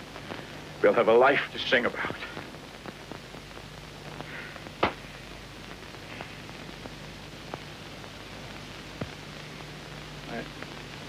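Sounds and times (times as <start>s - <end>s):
recording hiss: 0.0s - 11.0s.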